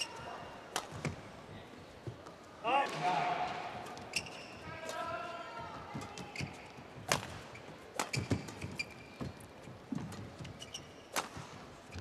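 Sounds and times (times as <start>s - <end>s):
racket striking shuttlecock: 0.7s - 1.1s, 7.1s - 8.7s, 11.1s - 11.6s
court shoes squeaking: 3.7s - 4.7s, 5.9s - 12.0s.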